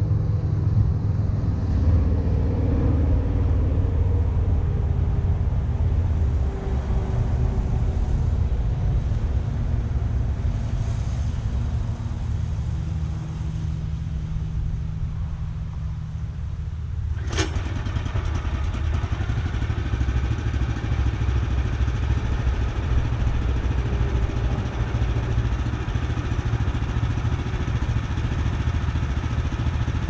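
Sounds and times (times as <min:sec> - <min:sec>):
small gasoline engine running: 0:17.1 - 0:30.0.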